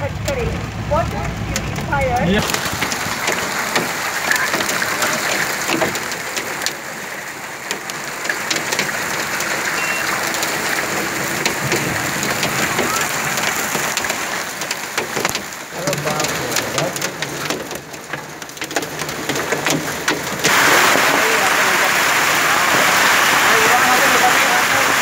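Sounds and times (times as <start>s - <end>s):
hailstones ticking: 0.0s - 25.0s
heavy rain hissing on street: 0.0s - 25.0s.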